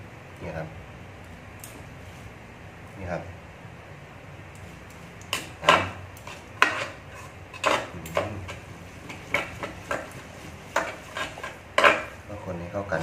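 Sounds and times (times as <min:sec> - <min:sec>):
utensils scraping a pot: 0:05.4 - 0:12.4.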